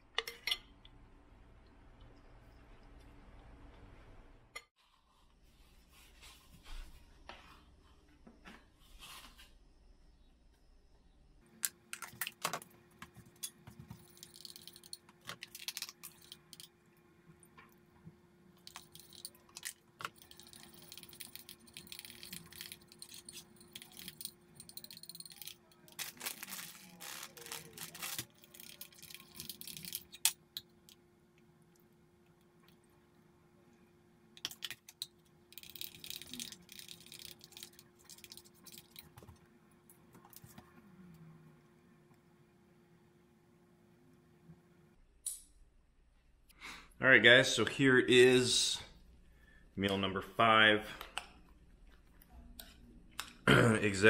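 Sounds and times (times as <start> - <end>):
faint steady hum: 5.2 - 54.0.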